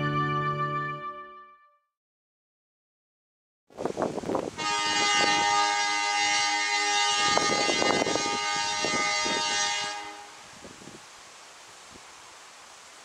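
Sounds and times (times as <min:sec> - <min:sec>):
locomotive horn blast: 0:04.6 - 0:10.5.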